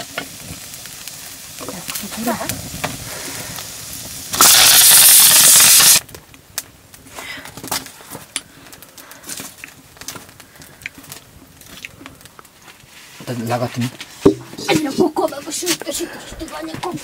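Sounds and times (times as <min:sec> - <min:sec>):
loud hiss: 0:00.0 - 0:06.0
meat frying in a pan: 0:00.0 - 0:06.1.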